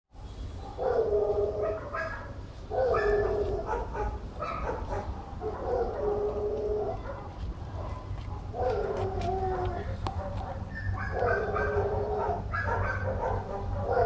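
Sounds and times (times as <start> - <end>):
cats meowing: 8.7 - 10.0.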